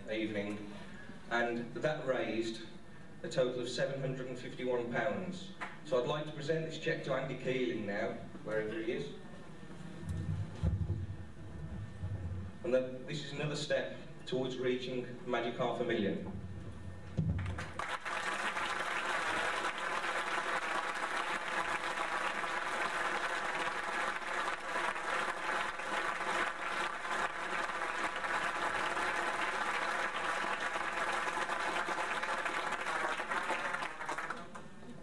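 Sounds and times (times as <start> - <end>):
crowd applauding: 17.4 - 34.6.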